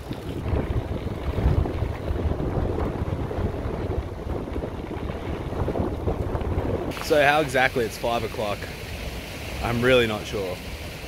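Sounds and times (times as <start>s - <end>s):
bicycle tyres rolling on gravel: 0.0s - 11.0s
wind buffeting microphone: 0.0s - 11.0s.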